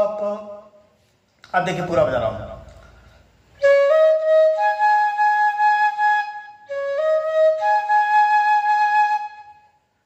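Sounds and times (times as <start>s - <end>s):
bamboo flute playing: 3.6s - 9.9s.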